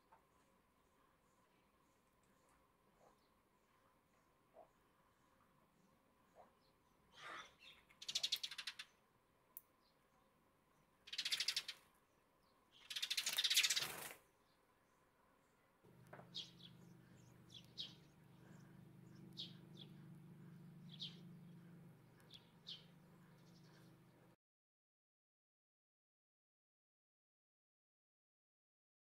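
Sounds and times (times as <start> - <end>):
wings fluttering: 12.9 - 14.3
steady low hum: 15.9 - 24.4.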